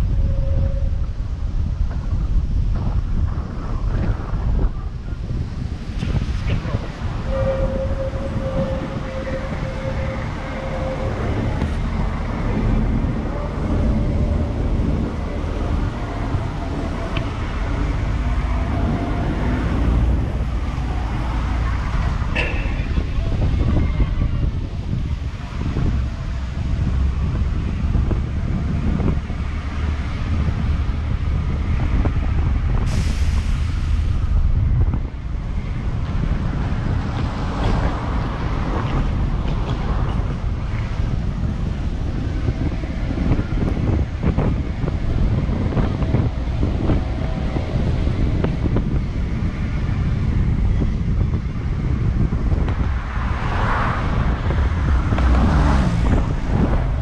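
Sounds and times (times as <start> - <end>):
bus engine and road rumble: 0.0 - 57.0
wind: 0.0 - 57.0
hiss: 32.8 - 34.1.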